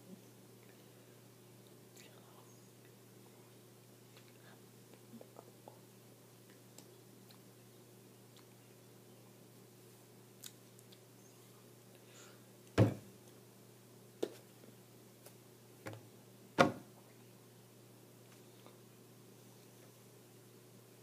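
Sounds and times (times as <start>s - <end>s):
low electrical hum: 0.0s - 21.0s
dull knocks and bumps: 12.8s - 13.0s.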